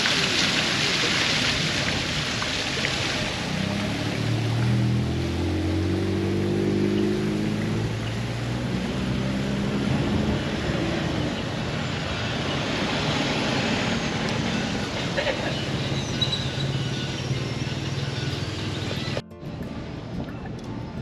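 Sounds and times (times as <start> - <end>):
continuous rushing noise: 7.2 - 21.0.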